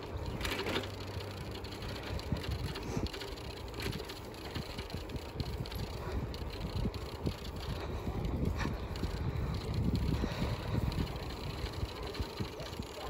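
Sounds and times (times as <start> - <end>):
bicycle rattles and knocks: 0.0 - 13.0
bicycle tyre noise: 0.0 - 13.0
wind buffeting microphone: 0.0 - 13.0.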